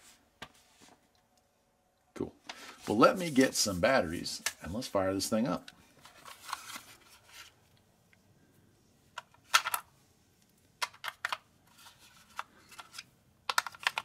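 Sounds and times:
paper packaging rustling: 5.9s - 7.6s, 10.8s - 14.0s.

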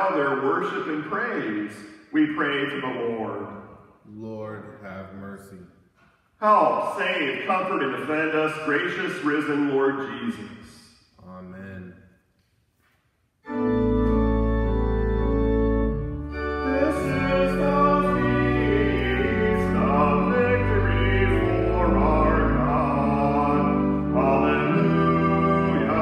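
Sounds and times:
church organ playing hymn: 0.0s - 3.6s, 13.4s - 26.0s.

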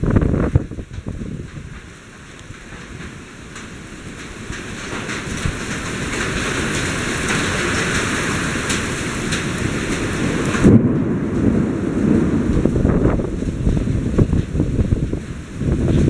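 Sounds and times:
heavy rain pouring: 0.0s - 16.0s
storm wind: 0.0s - 16.0s
loud low rumble: 10.4s - 16.0s.

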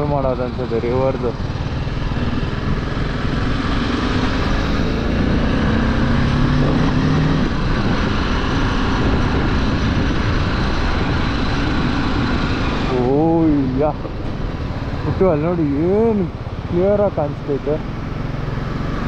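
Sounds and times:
motorcycle engine running: 0.0s - 19.0s
wind noise: 1.6s - 16.6s.

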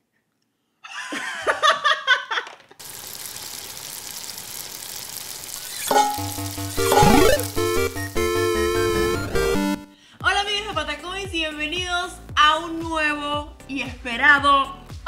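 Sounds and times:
frying sizzle in a pan: 2.8s - 8.2s
music jingle: 5.9s - 10.0s.

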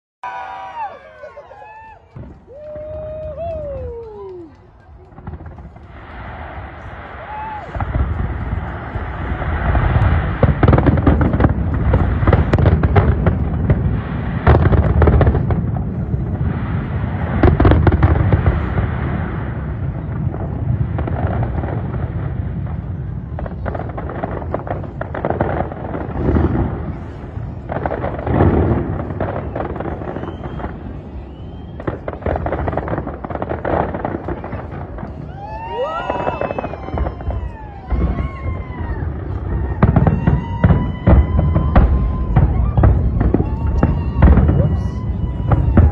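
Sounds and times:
fireworks crackling and popping: 0.2s - 45.9s
fireworks shells booming: 2.1s - 45.9s.

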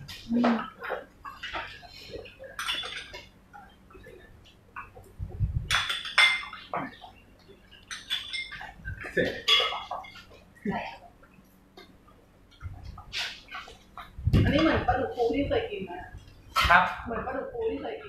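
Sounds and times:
utensil clinking glass bowl: 2.5s - 3.3s, 5.7s - 6.8s, 7.7s - 10.3s.

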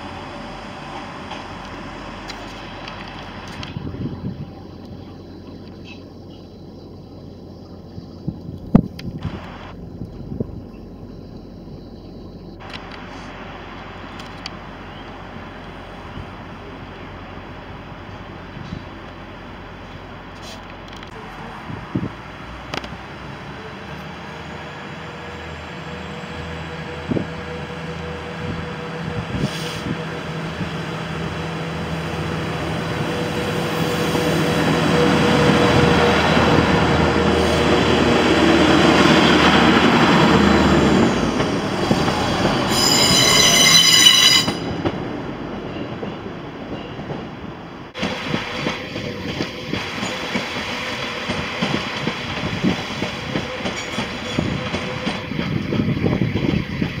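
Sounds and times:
train engine hum and rolling: 0.0s - 57.0s
high-pitched train squeal: 24.3s - 30.5s, 41.9s - 45.0s, 52.6s - 57.0s
distant train rail clatter: 33.8s - 57.0s.

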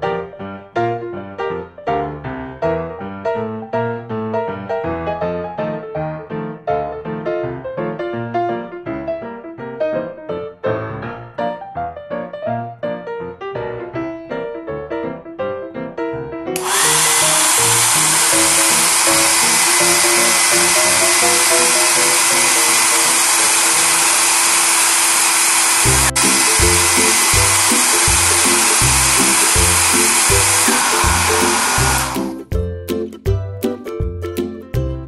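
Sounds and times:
toy hair dryer whining: 16.6s - 32.4s
background music: 25.9s - 35.0s.

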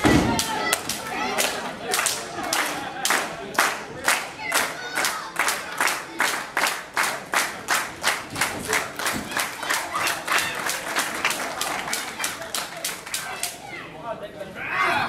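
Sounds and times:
crowd clapping in unison: 0.2s - 13.6s.

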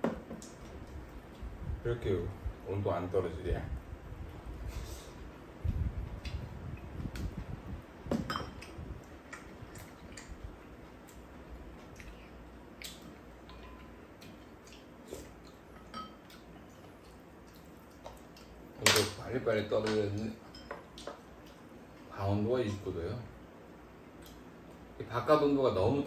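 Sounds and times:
spoons clinking against bowls: 8.3s - 8.7s, 13.4s - 14.0s, 15.8s - 16.3s, 19.8s - 21.2s.

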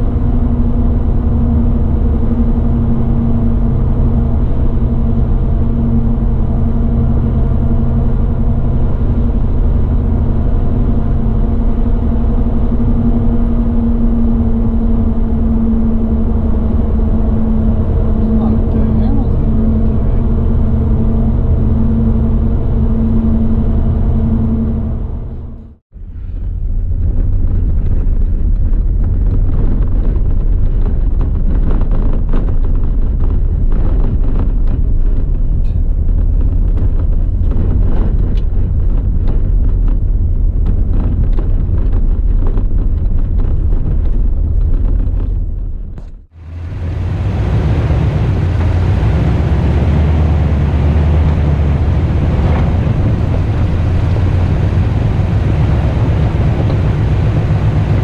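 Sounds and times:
vehicle engine and tyre hum: 0.0s - 58.0s
tyres rattling on gravel road: 26.3s - 46.3s, 49.9s - 58.0s.

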